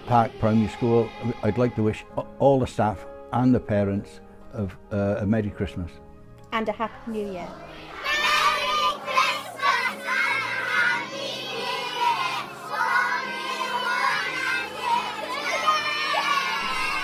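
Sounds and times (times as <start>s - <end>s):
children singing and shouting: 0.0s - 2.3s, 6.8s - 17.0s
children cheering: 7.6s - 17.0s.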